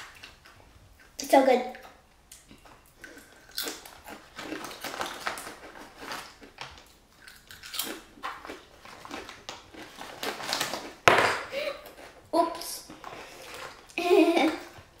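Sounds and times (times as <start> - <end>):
crunching and chewing chips: 2.4 - 11.0.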